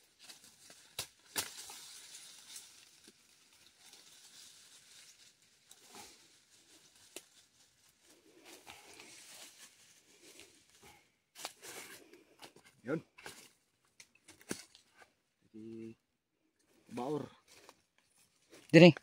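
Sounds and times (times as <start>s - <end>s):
rustling grass and dry leaves: 0.0s - 15.1s
knife striking ground: 0.3s - 1.8s, 14.3s - 14.8s.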